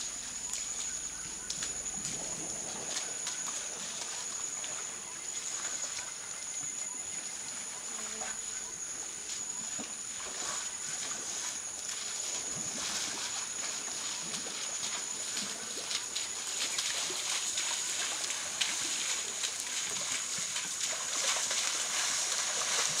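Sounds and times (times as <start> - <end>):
elephants splashing through mud: 0.0 - 6.3, 9.3 - 23.0.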